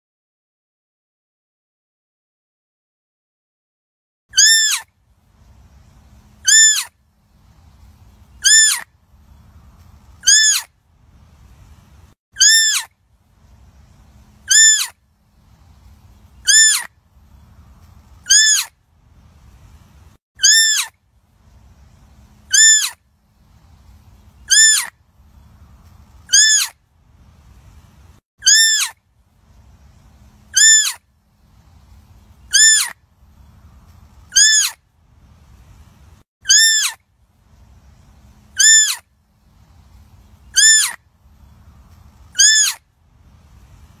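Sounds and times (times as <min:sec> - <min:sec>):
faint low rumble: 0:04.8 - 0:12.2, 0:12.8 - 0:20.2, 0:20.8 - 0:28.2, 0:28.9 - 0:36.3, 0:36.9 - 0:44.0
deer fawn bleating: 0:26.3 - 0:26.7, 0:42.4 - 0:42.8.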